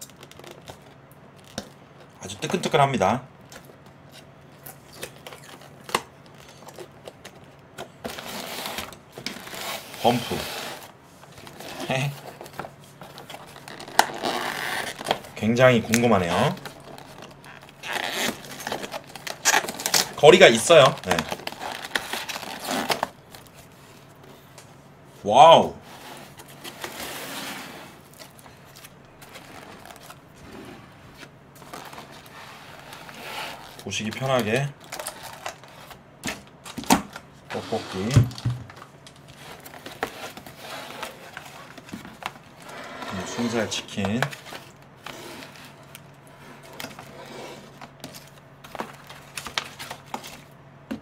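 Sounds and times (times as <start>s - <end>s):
boxes knocking and rustling: 26.0s - 42.6s.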